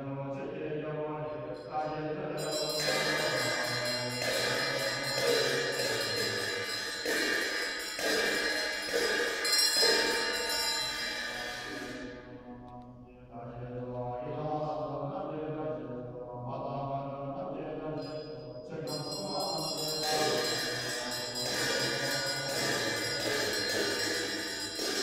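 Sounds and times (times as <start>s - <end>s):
low droning chant: 0.0s - 25.0s
bright sustained instrument tones: 2.7s - 12.4s.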